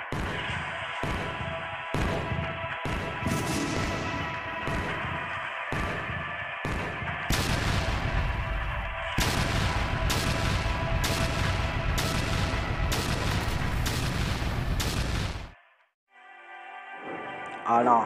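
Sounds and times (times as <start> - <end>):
dramatic music with sustained tones: 0.1 - 14.1
artillery fire: 0.1 - 15.6
explosion booms: 3.2 - 6.0, 6.6 - 15.6.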